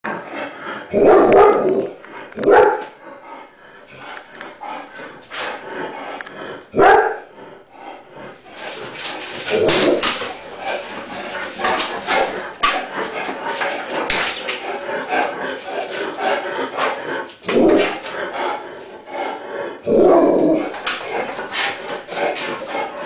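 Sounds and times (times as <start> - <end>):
dog barking: 1.0 - 1.8, 2.4 - 2.9, 6.8 - 7.3.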